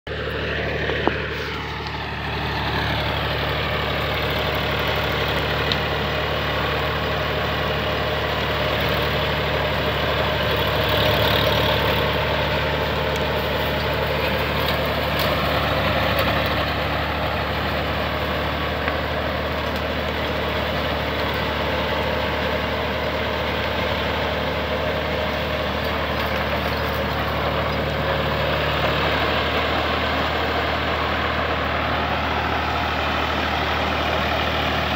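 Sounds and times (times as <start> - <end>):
tractor diesel engine under load: 0.1 - 34.9
rotavator blades churning soil: 0.2 - 34.9.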